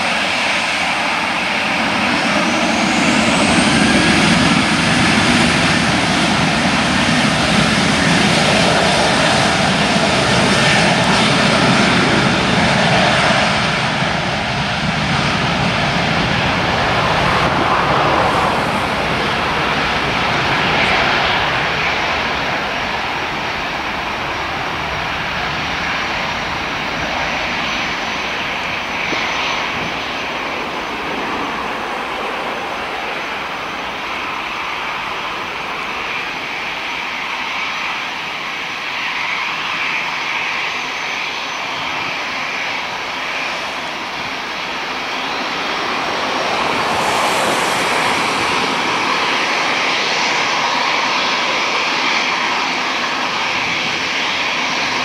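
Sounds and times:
jet engines spooling up: 0.0 - 55.0.

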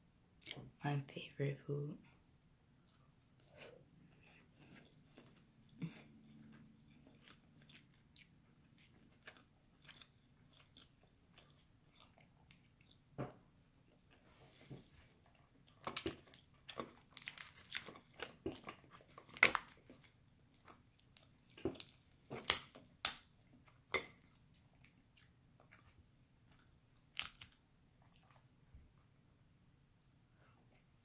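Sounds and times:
wet chewing: 2.2 - 14.2
crab shells cracking: 15.8 - 19.8, 22.4 - 23.3, 27.1 - 27.6.

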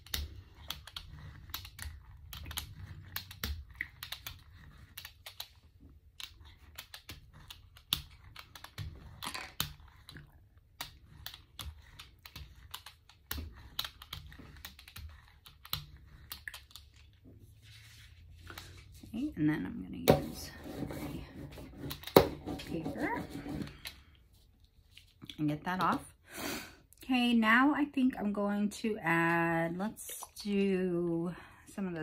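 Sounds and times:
brayer rolling paint crackling: 0.0 - 19.4.

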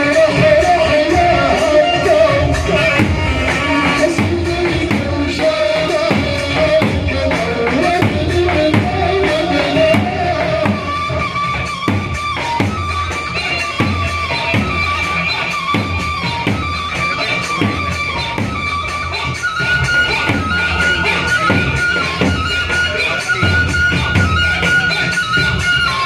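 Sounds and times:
heavy drum beat: 0.0 - 18.6
sustained folk melody: 0.0 - 26.0.

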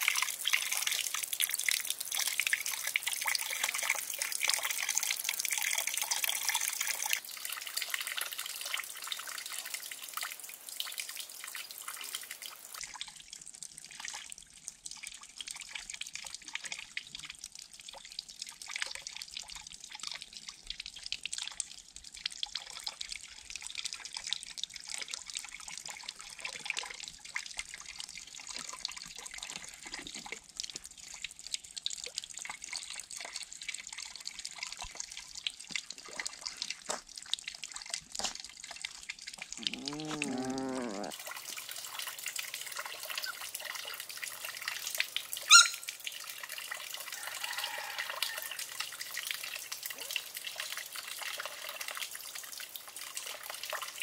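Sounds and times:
water drips and plops: 0.0 - 54.0
water trickling into a pond: 0.0 - 54.0
water hissing: 39.6 - 41.2
short wavering pitched call: 45.5 - 45.8.

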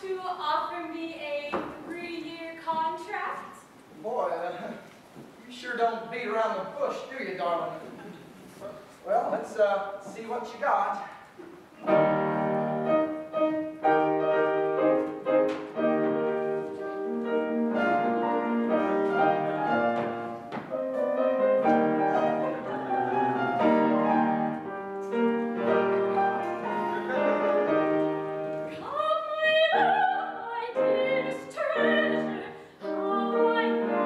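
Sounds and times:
classical piano playing: 11.8 - 34.0.

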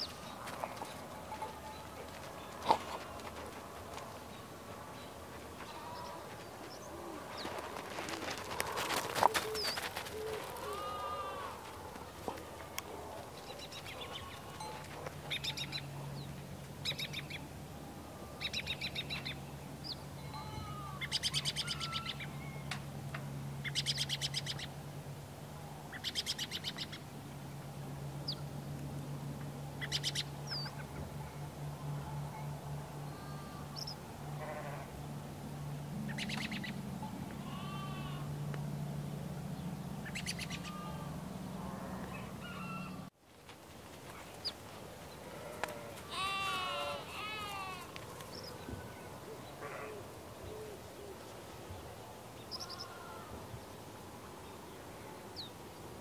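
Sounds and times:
steady low hum: 0.0 - 56.0
sparrows chirping: 13.4 - 17.4, 18.4 - 22.8, 23.6 - 24.7, 25.9 - 27.0, 29.8 - 31.0, 36.0 - 36.8, 39.6 - 41.0, 48.3 - 48.7, 52.4 - 53.1.

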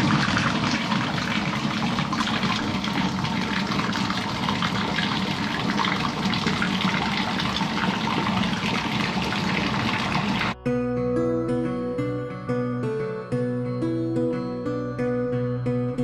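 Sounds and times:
milk gushing onto concrete floor: 0.0 - 10.6.

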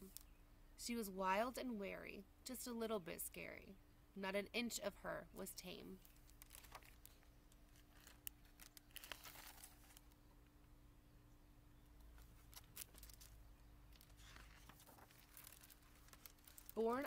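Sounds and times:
faint steady hum: 0.0 - 17.0
paper pages rustling: 6.0 - 10.2, 12.1 - 17.0.

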